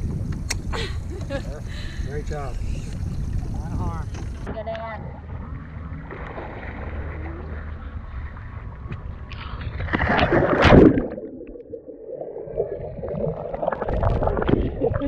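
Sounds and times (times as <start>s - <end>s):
wind buffeting microphone: 0.0s - 6.9s
loud splash into water: 9.9s - 11.5s
muffled underwater bubbling: 10.1s - 15.0s.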